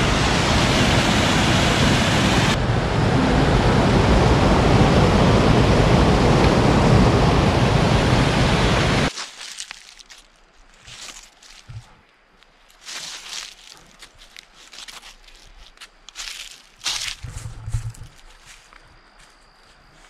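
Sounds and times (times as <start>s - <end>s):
waterfall rushing: 0.0s - 9.1s.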